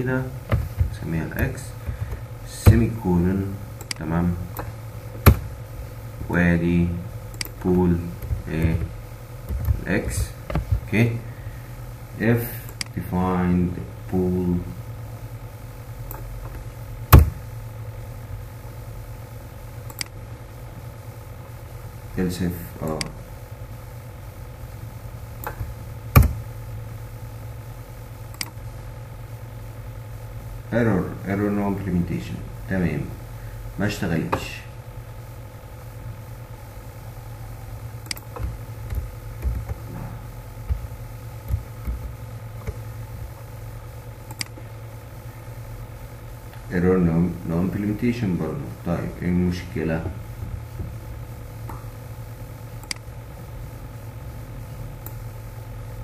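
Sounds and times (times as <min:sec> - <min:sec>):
steady low hum: 0:00.0 - 0:56.0
keyboard and mouse clicks: 0:19.9 - 0:20.2, 0:28.3 - 0:28.6, 0:44.3 - 0:44.6
soft low thumps: 0:38.4 - 0:42.9.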